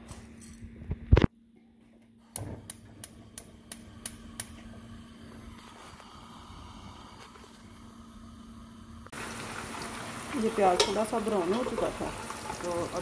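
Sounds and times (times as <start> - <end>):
faint hiss of burning gas: 2.2 - 11.2
gas stove igniter clicking: 2.3 - 4.6.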